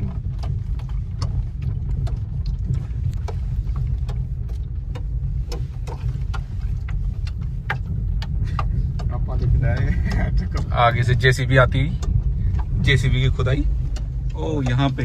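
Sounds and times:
car rumble on rough road: 0.0s - 15.0s.

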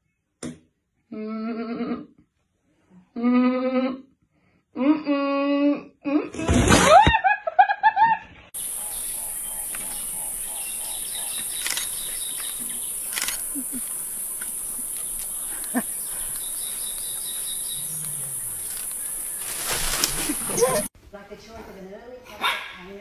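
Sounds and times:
faint chirping bird calls: 8.6s - 20.9s
high-pitched insect drone: 8.6s - 20.9s.

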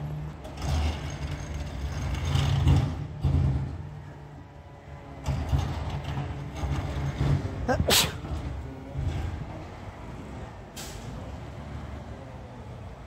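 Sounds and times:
garbage truck engine rumbling: 0.0s - 13.0s.

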